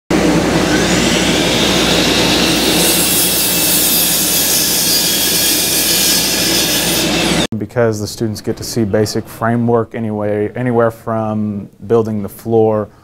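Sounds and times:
power saw cutting wood: 0.2s - 7.5s.

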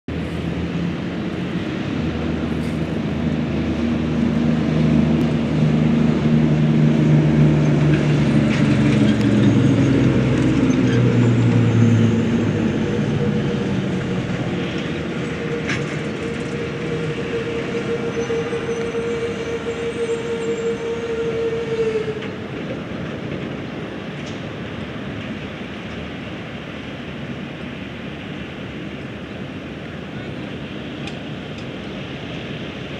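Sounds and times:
truck engine driving past: 0.1s - 22.7s
steady whine: 0.1s - 26.0s.

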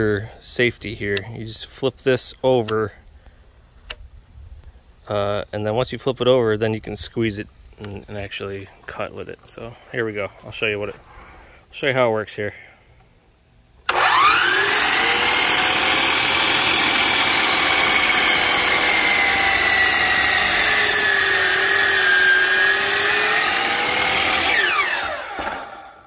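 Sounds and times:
miter saw motor whining: 13.8s - 26.0s
saw blade cutting board: 13.9s - 26.0s.

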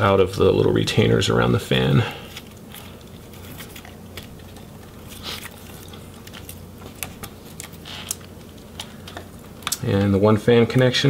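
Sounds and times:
steady low hum: 0.0s - 11.0s
small clicks and scrapes of wires: 2.3s - 9.9s.

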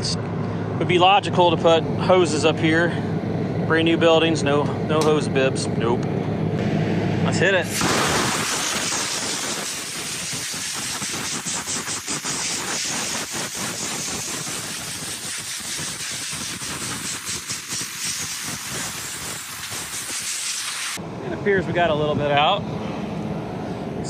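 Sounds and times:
compressed gas hissing from hose: 7.7s - 21.0s.

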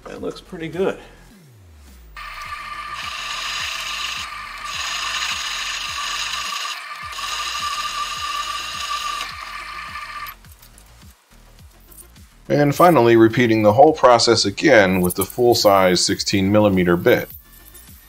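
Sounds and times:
milling machine gear whine: 2.2s - 10.4s.

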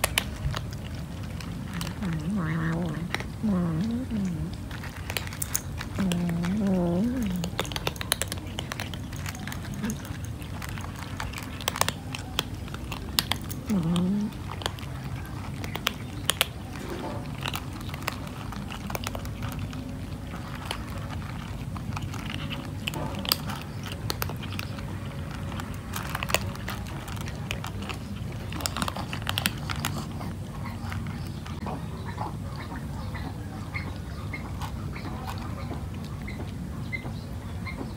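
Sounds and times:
cats crunching dry kibble: 0.0s - 31.8s, 32.4s - 37.6s
low hum-like voice: 1.7s - 4.7s, 5.9s - 7.7s, 11.9s - 17.4s.

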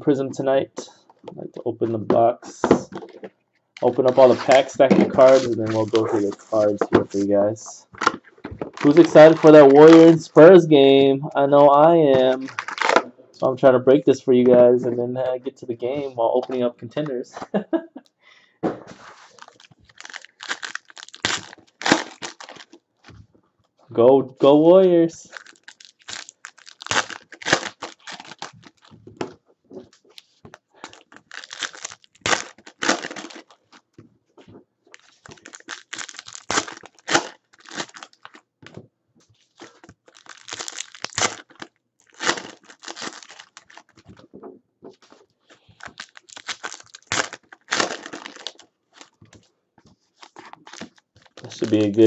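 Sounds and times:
foil wrappers tearing and crinkling: 3.8s - 7.3s, 8.0s - 10.5s, 12.3s - 13.0s, 19.1s - 22.8s, 25.2s - 28.9s, 30.8s - 33.8s, 34.9s - 38.4s, 39.4s - 44.1s, 45.8s - 49.2s, 50.2s - 52.0s.

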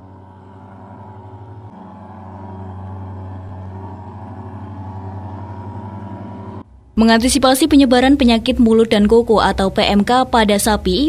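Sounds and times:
motorized fogger engine drone: 0.0s - 7.0s.

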